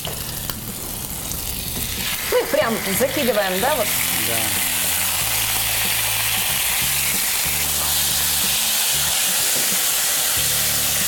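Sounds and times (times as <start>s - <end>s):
wings sizzling in hot oil: 0.0s - 11.0s.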